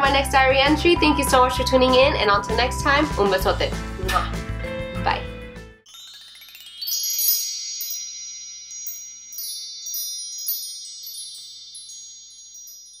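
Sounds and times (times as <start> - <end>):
sparkly chime: 5.8 - 13.0.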